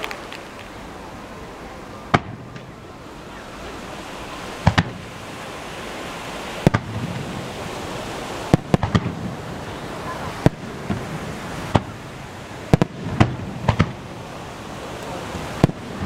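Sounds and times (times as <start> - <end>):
steady background hiss: 0.0 - 16.0
firework shells bursting: 4.6 - 5.1, 6.6 - 7.3, 8.5 - 9.3, 10.4 - 12.0, 12.7 - 14.1, 15.6 - 16.0.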